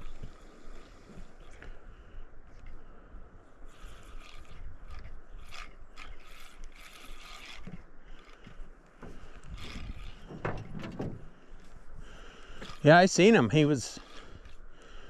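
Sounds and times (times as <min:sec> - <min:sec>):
fishing reel rattling whirr: 0:00.0 - 0:01.6, 0:03.7 - 0:08.6, 0:09.2 - 0:10.9, 0:12.4 - 0:15.0.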